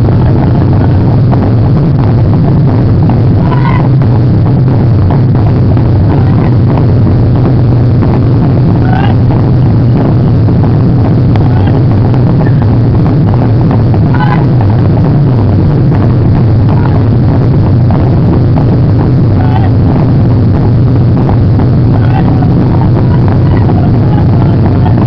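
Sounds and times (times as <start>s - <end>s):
people shouting calls: 3.4s - 4.0s, 8.8s - 9.3s, 11.4s - 11.9s, 14.1s - 14.6s, 19.4s - 19.8s, 21.9s - 25.0s.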